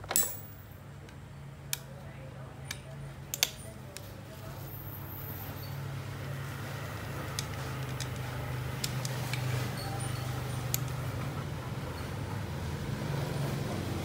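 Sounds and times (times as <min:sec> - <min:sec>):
small tools clicking: 0:02.7 - 0:04.1, 0:07.3 - 0:11.1.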